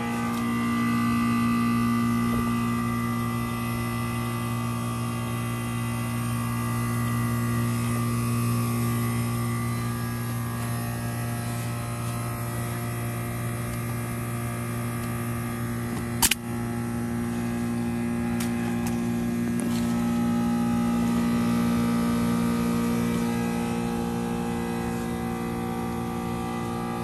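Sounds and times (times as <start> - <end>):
heat pump humming: 0.0 - 27.0
sharp click: 16.0 - 16.4.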